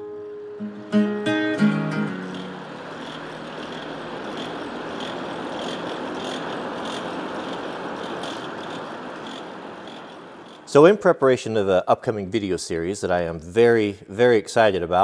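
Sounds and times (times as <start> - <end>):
fire crackles: 0.9 - 10.9
air rushing through forge fire: 2.2 - 10.9.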